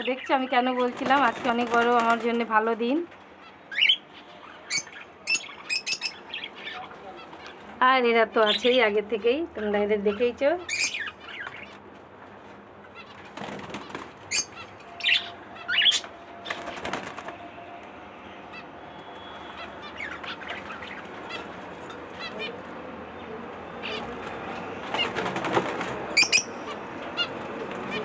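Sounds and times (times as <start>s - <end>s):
wings fluttering: 0.8s - 2.4s, 13.2s - 14.5s, 15.9s - 17.5s, 24.0s - 26.4s
parrots chirping: 3.3s - 7.8s, 10.1s - 11.9s, 12.8s - 16.7s, 18.5s - 25.2s, 26.1s - 28.0s.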